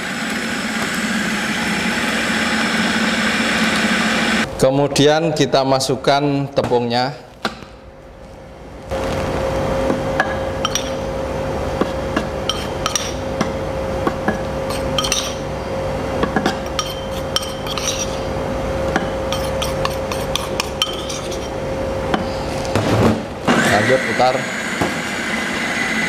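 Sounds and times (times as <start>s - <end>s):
food processor running: 0.0s - 4.5s, 23.4s - 26.0s.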